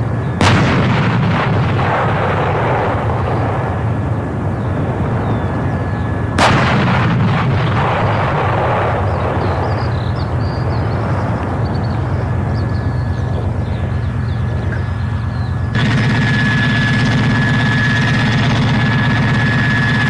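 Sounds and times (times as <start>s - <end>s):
steady low rumble: 0.0s - 20.0s
artillery gun shot boom: 0.4s - 3.5s, 6.4s - 9.9s.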